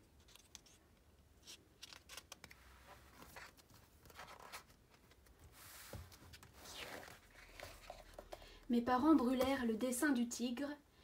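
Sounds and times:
paper pages rustling: 0.2 - 8.4.

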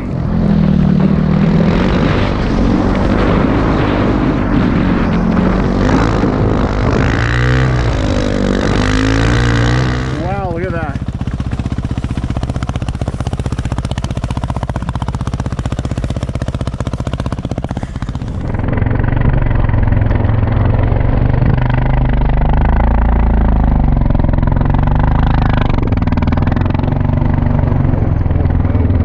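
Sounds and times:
dirt bike engine revving: 0.0 - 29.0.

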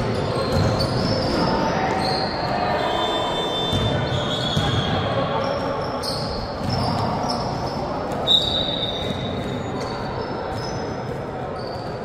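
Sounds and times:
sneakers squeaking on court: 0.0 - 2.6, 3.7 - 12.0
basketball bouncing: 0.4 - 1.2, 6.6 - 7.5.

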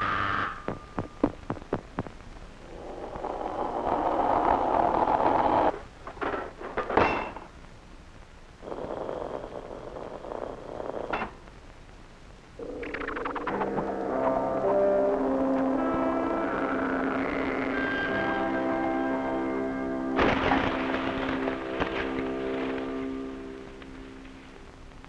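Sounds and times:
hiss: 2.6 - 5.7.

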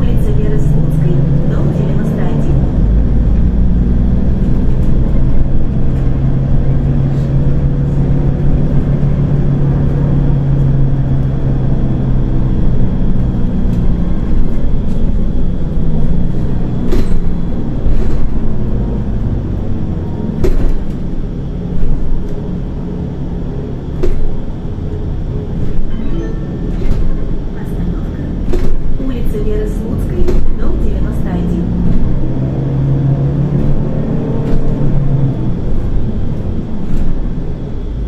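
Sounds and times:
bus engine hum: 0.0 - 38.0
sharp clicks or knocks: 20.4 - 21.0.

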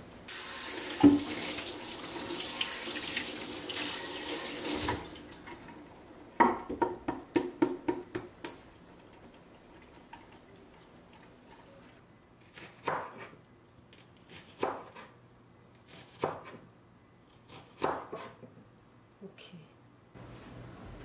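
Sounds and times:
tap running into metal sink: 0.9 - 1.4.

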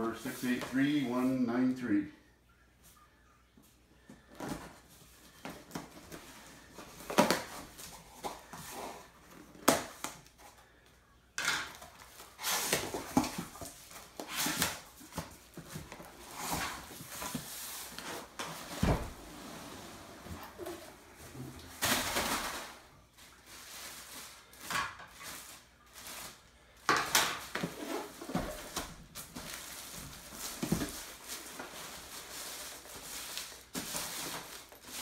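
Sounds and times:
cardboard flaps rustling: 27.4 - 35.0.

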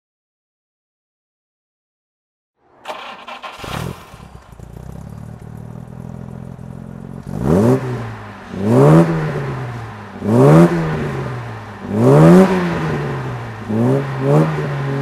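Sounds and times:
car engine starting and idling: 2.6 - 13.7
engine revving: 2.7 - 15.0.

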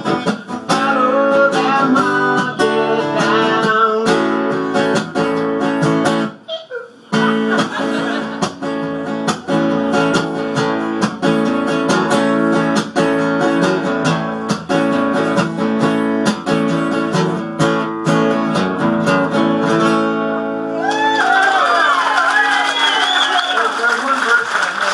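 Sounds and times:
acoustic guitar strumming: 0.0 - 6.5, 7.1 - 20.8
crowd cheering and clapping: 20.7 - 24.9.

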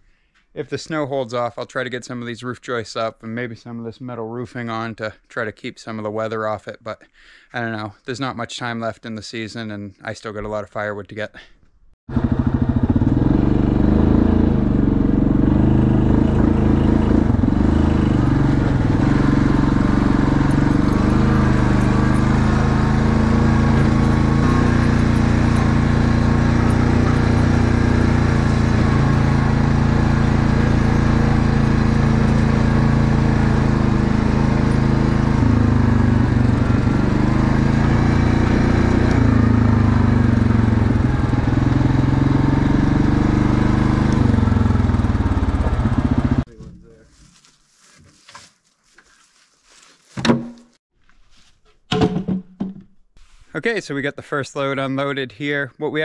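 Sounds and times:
atv engine running: 12.1 - 46.5.

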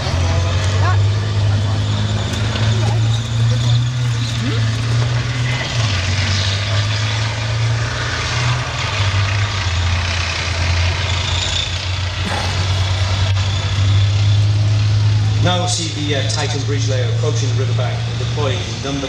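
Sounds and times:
heavy vehicle engine running: 0.0 - 19.0.

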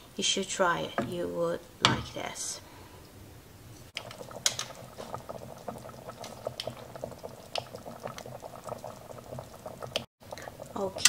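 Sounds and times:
stew bubbling in a pot: 4.0 - 11.0.

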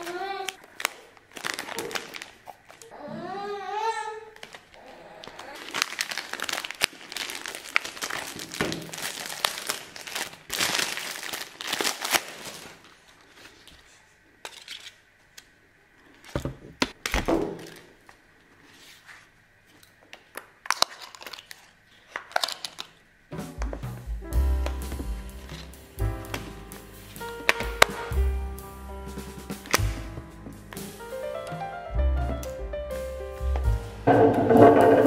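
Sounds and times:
plastic wrap crinkling and tearing: 0.0 - 2.9, 4.3 - 13.9, 20.2 - 23.0, 27.2 - 28.1
cable and strip being handled: 4.4 - 15.5, 19.7 - 23.0
music: 23.3 - 35.0.

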